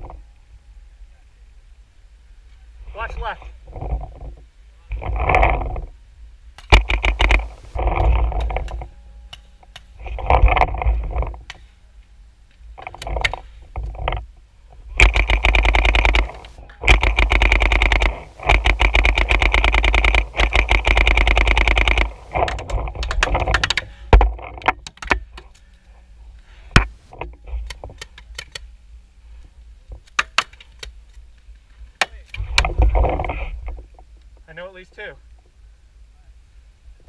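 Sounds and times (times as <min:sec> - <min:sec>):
paintball marker firing: 0:06.6 - 0:07.8, 0:15.0 - 0:23.9.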